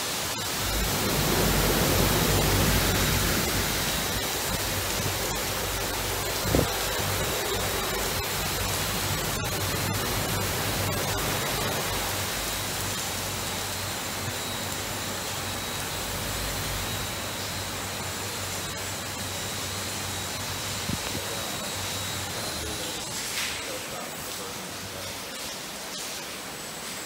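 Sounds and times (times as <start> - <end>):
water spray hissing: 0.0 - 14.8
spinning brush scrubbing truck: 0.0 - 26.6
low hum: 0.1 - 17.8.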